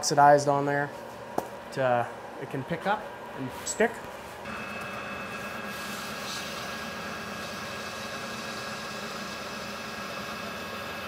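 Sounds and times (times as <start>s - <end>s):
abrasive cloth polishing metal: 4.5s - 10.8s
metal lathe whining: 4.5s - 11.0s.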